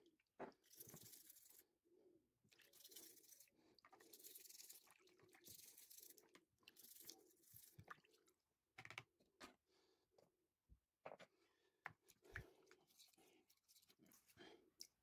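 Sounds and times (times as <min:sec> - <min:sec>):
toothbrush scrubbing plastic: 0:00.5 - 0:01.7, 0:02.5 - 0:08.1, 0:12.1 - 0:15.0.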